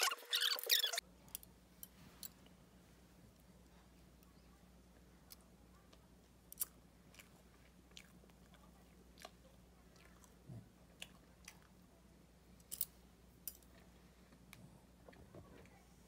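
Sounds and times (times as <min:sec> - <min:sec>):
soft chewing: 0:03.2 - 0:13.0.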